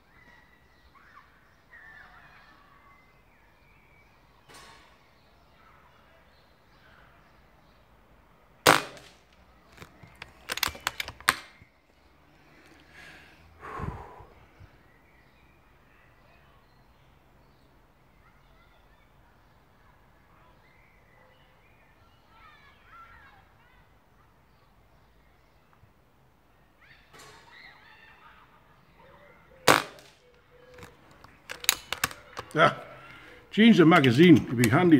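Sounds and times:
air rifle shot: 0:08.6 - 0:09.2, 0:29.7 - 0:30.2
mechanical clicks of rifle action: 0:08.7 - 0:11.6, 0:30.7 - 0:32.6.

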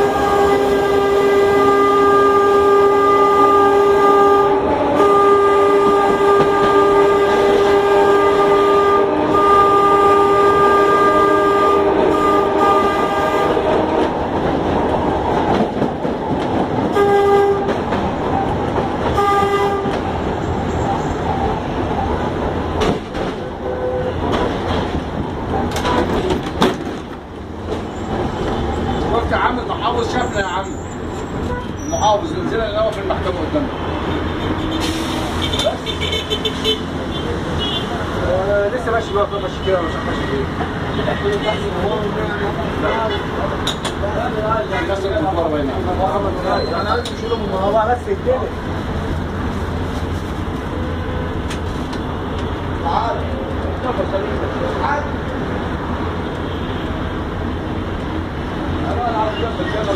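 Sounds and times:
horn blasts: 0:00.0 - 0:14.1, 0:16.9 - 0:17.8, 0:19.1 - 0:20.0
wheel rumble and rail clatter: 0:00.0 - 0:59.9.

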